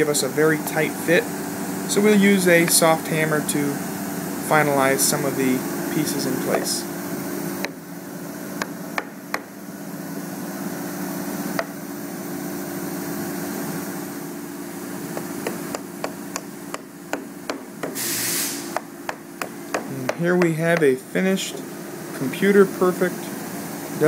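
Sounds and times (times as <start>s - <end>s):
workshop hum: 0.0s - 24.0s
hammer tapping wood: 15.1s - 18.0s, 18.7s - 21.6s.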